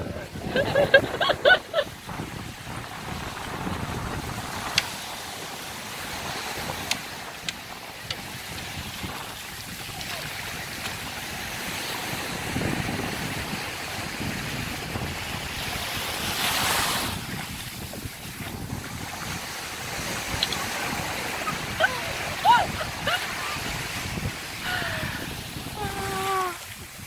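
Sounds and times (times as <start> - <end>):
surf: 0.0 - 27.0
wind: 0.0 - 27.0.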